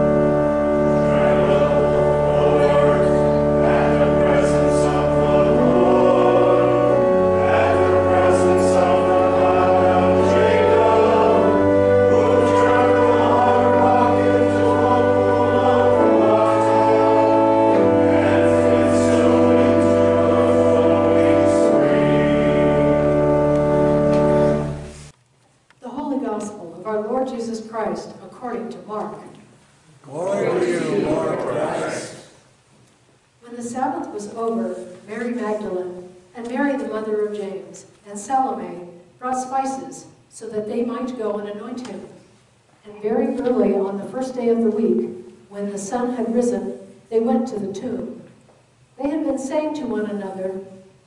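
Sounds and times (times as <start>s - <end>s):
church organ chords: 0.0s - 25.1s
congregation singing a hymn: 0.0s - 25.1s, 30.1s - 32.4s.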